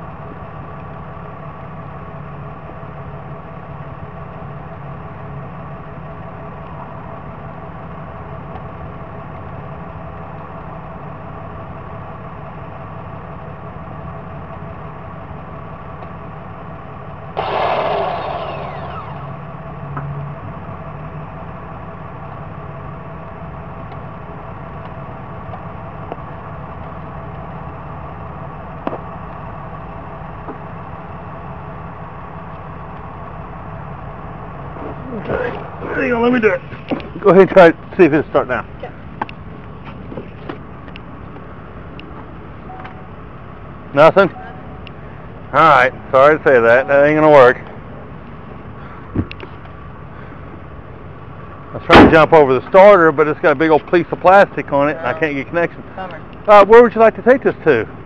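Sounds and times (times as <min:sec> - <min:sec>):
engine idling: 0:00.0 - 0:58.0
loud hissing burst: 0:17.4 - 0:19.4.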